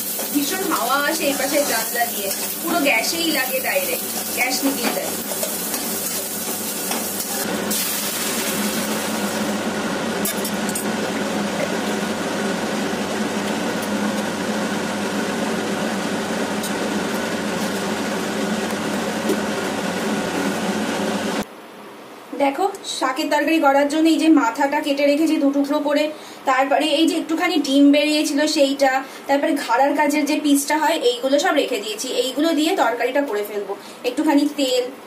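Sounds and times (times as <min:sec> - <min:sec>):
onion sizzling in oil: 0:00.0 - 0:10.3.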